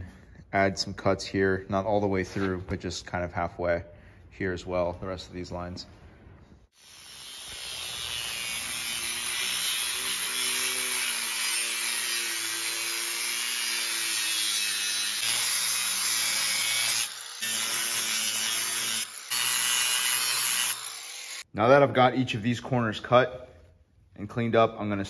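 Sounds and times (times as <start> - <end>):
angle grinder cutting steel: 6.7 - 21.5.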